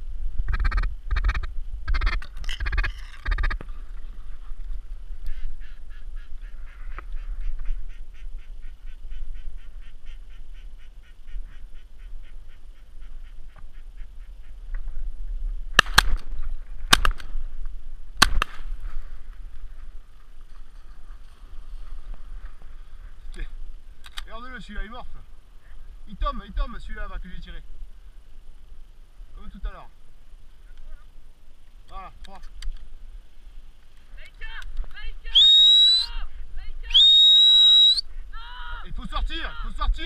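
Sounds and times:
ducks quacking: 5.2s - 14.6s
shotgun shots: 15.8s - 16.3s, 18.2s - 18.7s.

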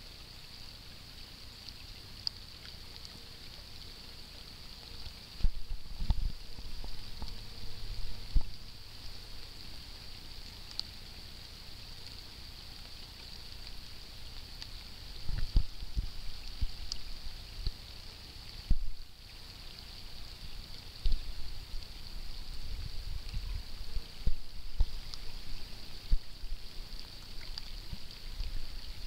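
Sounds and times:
light rain falling on water: 0.0s - 29.0s
wind buffeting microphone: 5.4s - 8.6s.

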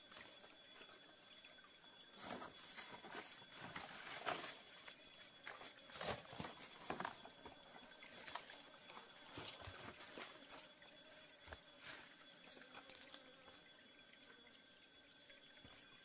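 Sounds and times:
dry leaves and twigs rustling: 2.2s - 10.7s.

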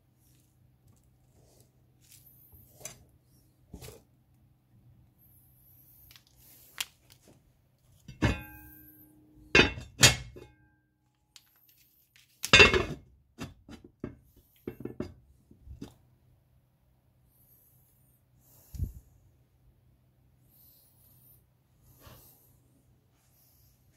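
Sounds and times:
dishes and utensils clinking: 9.6s - 10.5s.

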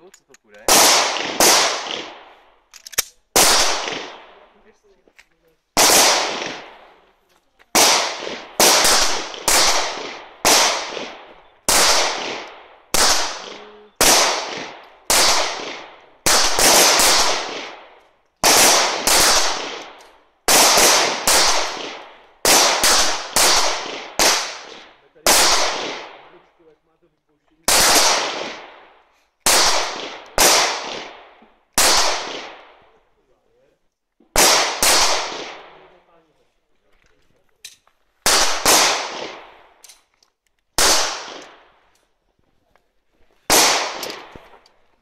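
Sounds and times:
pistol shots echoing: 0.7s - 2.4s, 3.3s - 4.6s, 5.8s - 7.0s, 7.7s - 26.4s, 27.6s - 32.9s, 34.3s - 36.0s, 38.2s - 39.9s, 40.8s - 42.0s, 43.5s - 44.6s.

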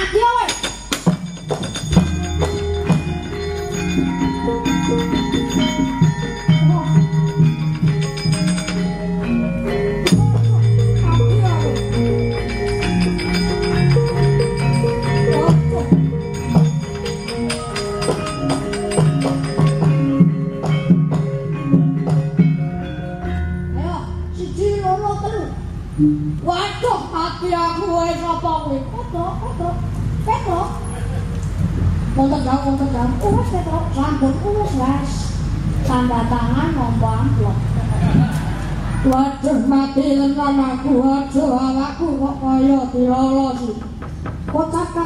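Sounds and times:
bronze metallophones: 0.0s - 31.0s
metal plates clattering: 0.4s - 9.2s, 10.1s - 20.2s.

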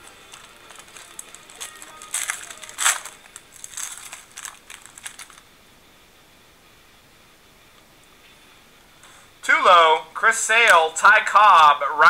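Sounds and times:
foil pack tearing and crinkling: 0.0s - 5.4s.

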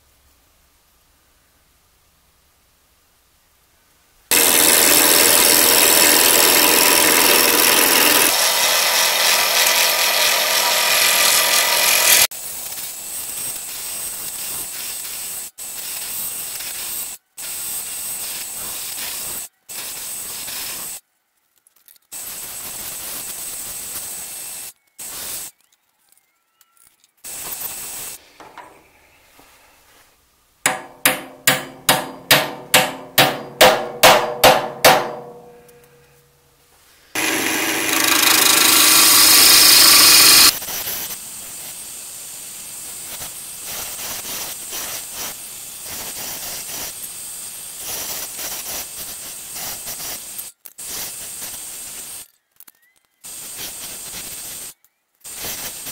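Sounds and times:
turning tool cutting wood: 4.3s - 12.3s, 30.7s - 35.6s, 37.2s - 40.6s
wood lathe spinning: 4.3s - 12.3s, 30.7s - 35.4s, 37.2s - 40.6s
hammer tapping metal: 28.4s - 28.8s, 30.7s - 36.1s.

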